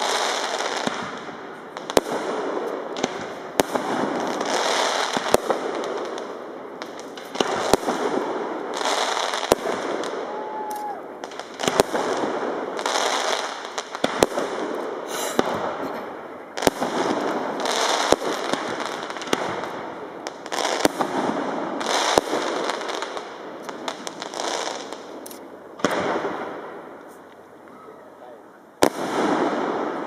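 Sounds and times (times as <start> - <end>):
firework crackling: 0.0 - 30.0.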